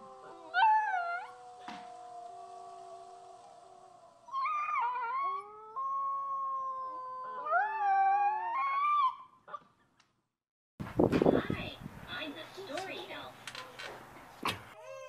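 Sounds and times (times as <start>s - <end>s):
puppy howling: 0.0s - 9.3s.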